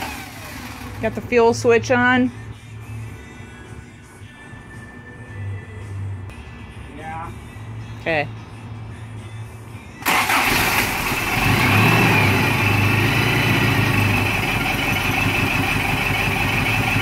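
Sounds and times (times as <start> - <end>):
truck engine idling: 10.0 - 17.0.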